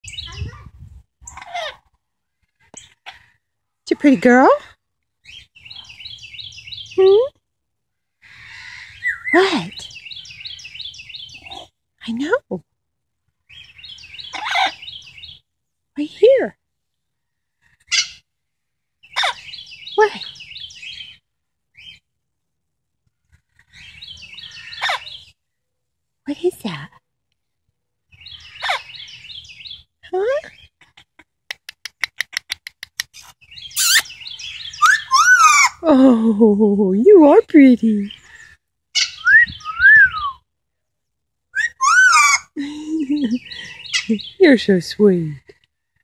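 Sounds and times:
bird chirping: 0.0s - 1.8s, 5.2s - 7.3s, 8.4s - 12.3s, 13.4s - 15.5s, 19.0s - 22.1s, 23.4s - 25.5s, 28.1s - 36.1s, 37.3s - 40.4s, 41.0s - 45.0s
parrot whistling: 33.8s - 34.1s, 34.8s - 35.7s, 39.1s - 40.4s, 41.6s - 42.5s.

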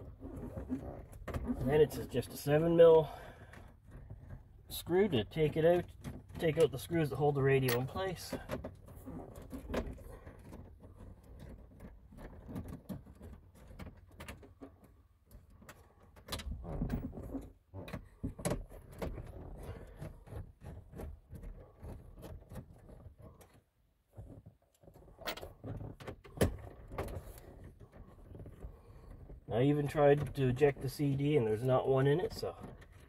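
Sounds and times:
metal and plastic clicks and scrapes: 3.4s - 31.0s.

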